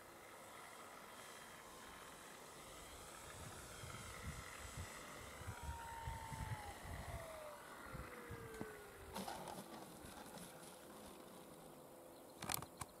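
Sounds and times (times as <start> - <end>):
electric motor and propeller whine: 0.0 - 13.0
wind rumble on microphone: 3.3 - 10.4.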